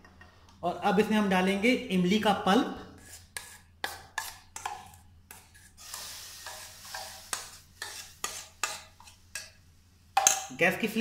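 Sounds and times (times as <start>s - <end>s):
spoon scraping steel bowl: 3.0s - 9.6s
sizzle in hot pan: 5.8s - 8.9s.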